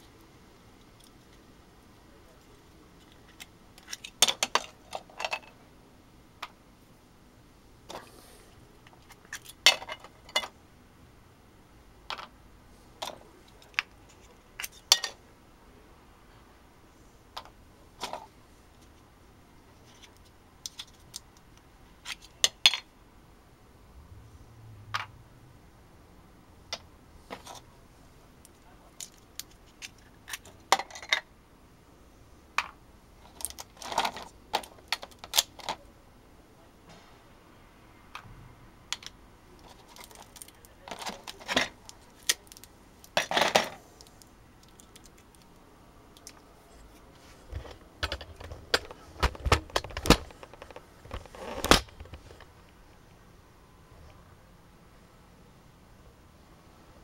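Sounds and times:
small pieces clicking and clinking: 38.9 - 45.5.

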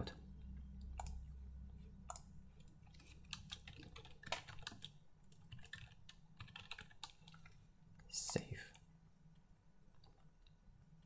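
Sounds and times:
computer keyboard keystrokes: 1.0 - 1.2, 2.9 - 7.6.

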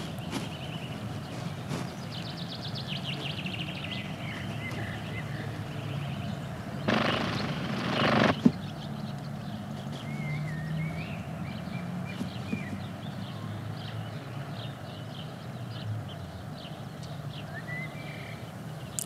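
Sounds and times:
small birds chirping: 0.0 - 19.0
loud rushing noise: 6.9 - 8.6.

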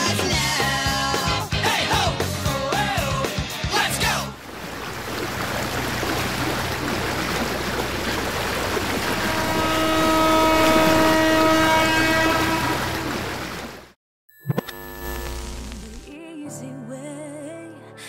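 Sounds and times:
ship horn blast: 7.7 - 13.8.

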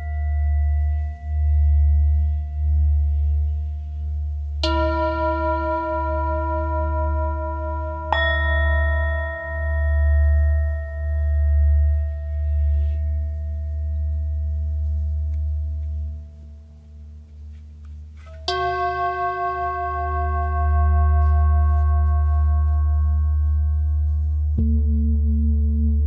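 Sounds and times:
low steady drone: 0.0 - 17.5, 18.1 - 26.0
struck bell tones ringing: 4.7 - 11.5.

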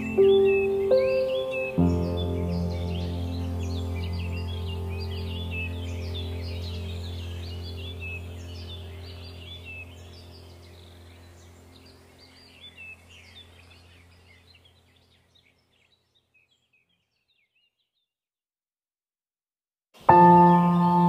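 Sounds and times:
birds chirping: 0.0 - 18.1, 20.0 - 21.0
low steady hum: 2.3 - 15.1.

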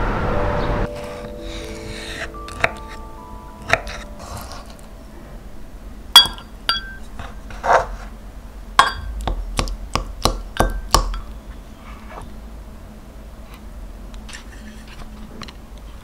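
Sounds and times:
spoon scraping mug: 3.7 - 4.9
spoon tapping mug: 8.8 - 9.4.

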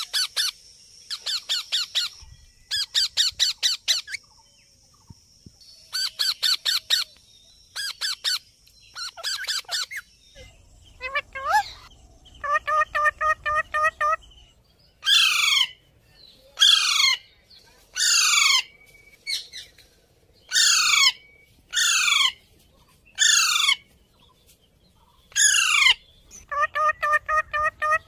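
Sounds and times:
harsh parakeet calls: 0.0 - 4.2, 7.8 - 15.8, 20.5 - 22.4, 23.2 - 23.9, 25.2 - 28.0
parakeet chattering: 11.0 - 14.4, 25.3 - 28.0.

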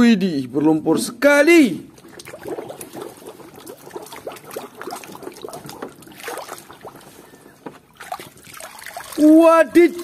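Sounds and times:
water sloshing in plastic basin: 1.8 - 10.0.

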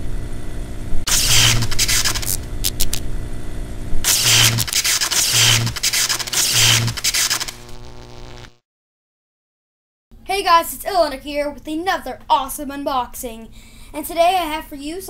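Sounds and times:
low buzzing hum: 0.0 - 8.6
harsh hissing noise bursts: 1.1 - 2.8, 4.0 - 8.6.

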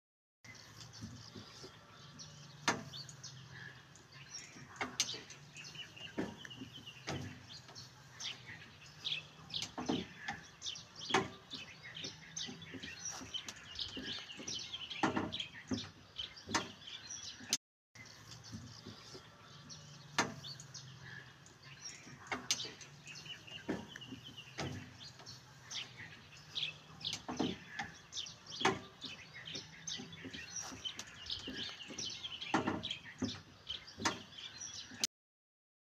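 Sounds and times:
small birds chirping: 0.4 - 35.1
sharp clicks and knocks: 2.6 - 3.2, 4.4 - 17.6, 20.1 - 20.8, 21.9 - 35.1.

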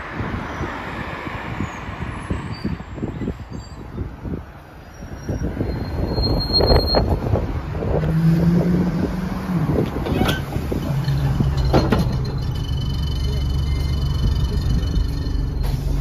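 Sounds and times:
bus diesel engine idling: 9.7 - 16.0.

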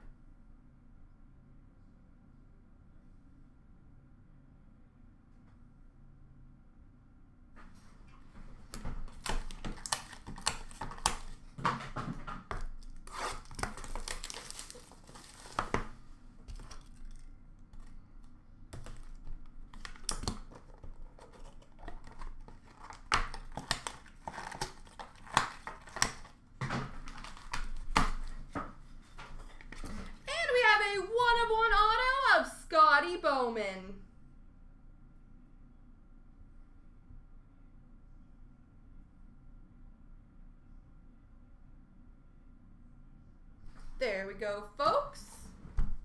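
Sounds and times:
wrapping tearing and crinkling: 8.7 - 11.6, 12.5 - 30.2.

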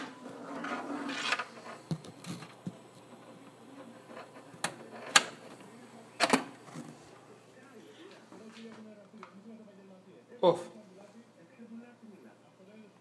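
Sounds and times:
cables rustling and scraping: 0.0 - 7.3
plugs clicking and knocking: 4.2 - 6.8.

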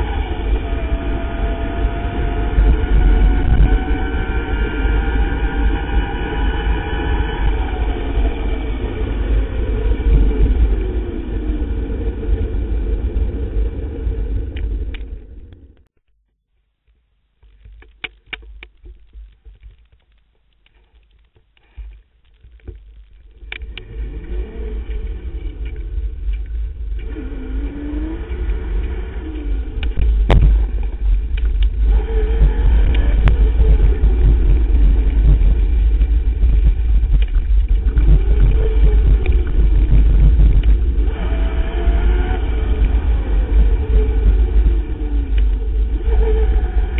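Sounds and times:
wind rushing on microphone: 0.0 - 15.9, 22.5 - 46.9
clicks and rattles: 16.8 - 23.9.

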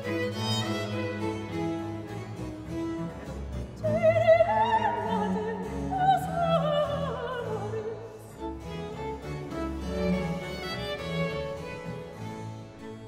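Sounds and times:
baroque string ensemble: 0.0 - 13.0
soprano singing with vibrato: 3.8 - 8.6.

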